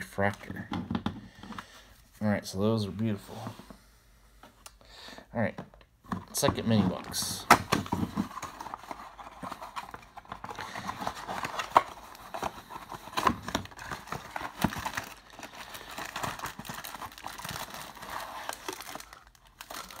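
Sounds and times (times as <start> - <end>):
cardboard and foil rustling: 6.3 - 20.0.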